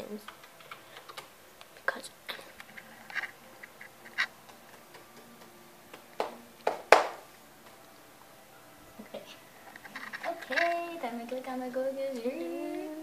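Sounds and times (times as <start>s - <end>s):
keyboard and mouse clicks: 0.2s - 1.7s.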